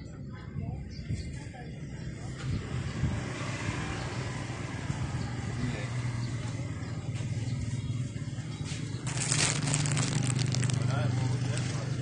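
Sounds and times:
vehicle engine running: 6.2s - 12.0s.

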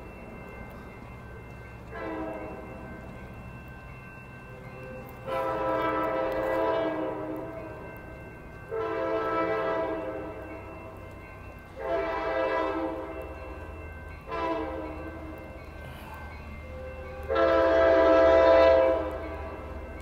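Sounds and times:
train air horn blasts: 1.9s - 2.6s, 5.2s - 7.6s, 8.7s - 10.4s, 11.8s - 13.1s, 14.3s - 15.3s, 17.2s - 19.2s.

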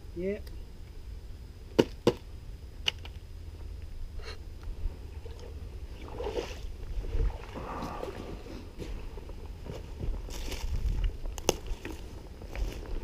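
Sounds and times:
wind rumble on microphone: 3.8s - 13.0s
water sloshing and splashing: 5.2s - 8.7s.

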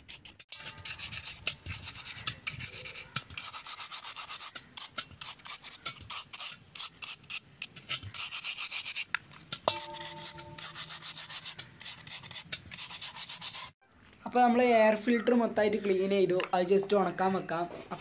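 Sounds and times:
plastic brush scrubbing wire mesh: 0.0s - 13.7s.

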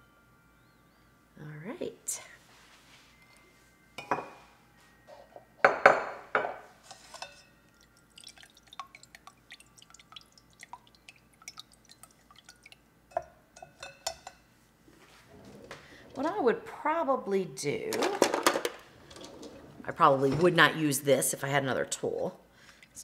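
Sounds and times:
glass knocks and clinks: 4.0s - 4.5s, 5.6s - 7.5s
liquid dripping through strainer: 7.1s - 14.0s.

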